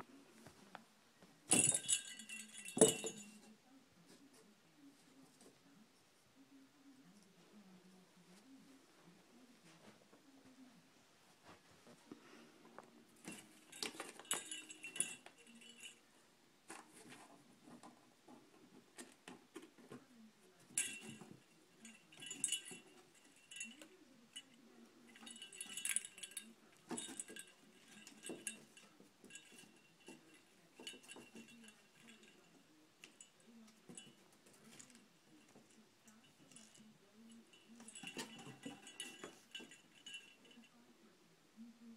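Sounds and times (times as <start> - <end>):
cat toy jingling: 1.5 - 3.4, 13.2 - 16.1, 20.7 - 24.5, 25.1 - 40.7.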